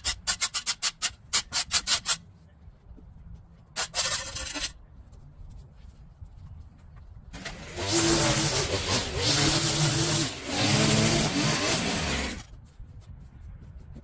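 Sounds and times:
small power tool engine revving: 0:07.4 - 0:12.4.

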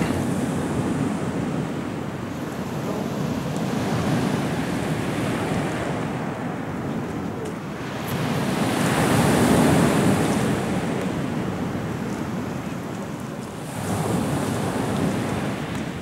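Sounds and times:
waves breaking on pebble beach: 0:07.8 - 0:16.0.

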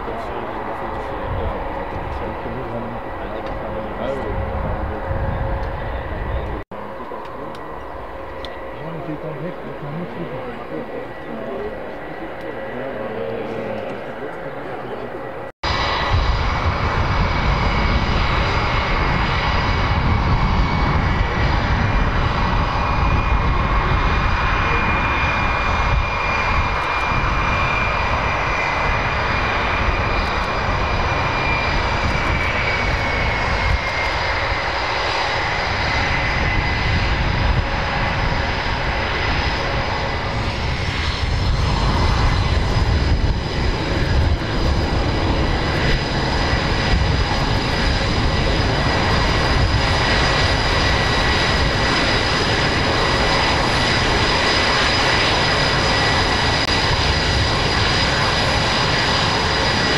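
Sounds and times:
jet engine whine: 0:00.0 - 0:59.9.

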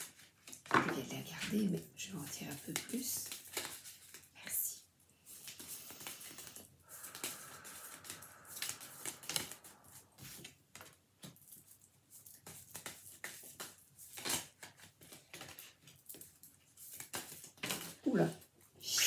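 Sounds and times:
cards being shuffled: 0:02.5 - 0:04.4, 0:05.3 - 0:18.0.

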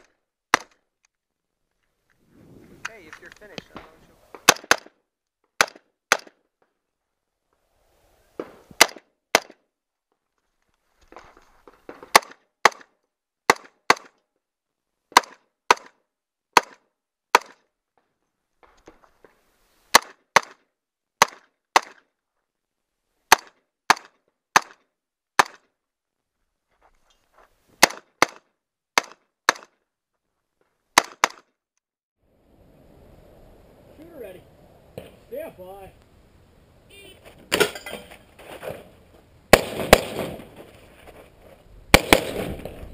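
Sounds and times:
rifle shots: 0:03.6 - 0:05.0, 0:27.8 - 0:28.4, 0:39.5 - 0:40.5, 0:41.9 - 0:42.9.

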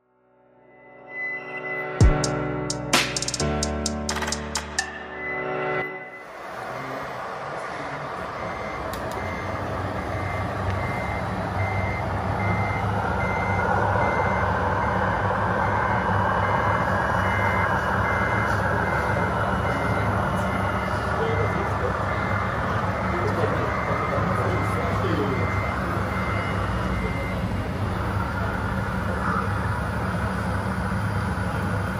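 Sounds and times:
reversing beeper beeps: 0:00.8 - 0:02.4, 0:04.6 - 0:31.8.

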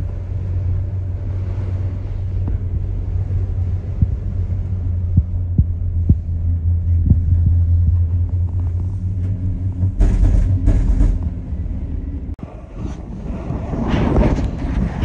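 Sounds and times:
gondola cabin low rumble: 0:00.0 - 0:15.0
rushes of noise: 0:00.0 - 0:15.0.

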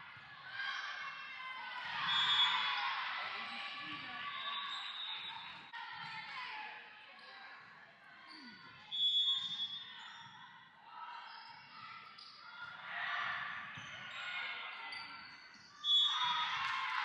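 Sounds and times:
players and spectators calling out: 0:00.0 - 0:07.3.

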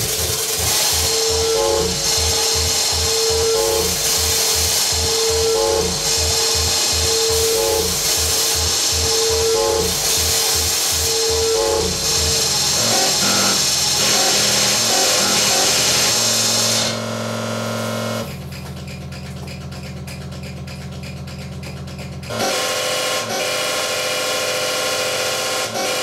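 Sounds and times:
steady low drone: 0:00.0 - 0:18.6
harsh electronic noise: 0:00.0 - 0:26.0.

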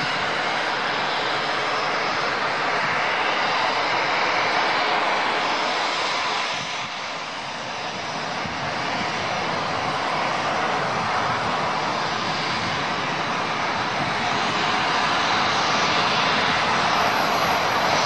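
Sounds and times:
aircraft engines roaring: 0:00.0 - 0:18.0.

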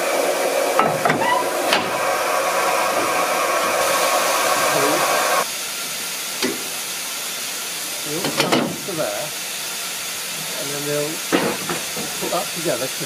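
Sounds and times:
steam hissing from locomotive: 0:00.0 - 0:13.0.

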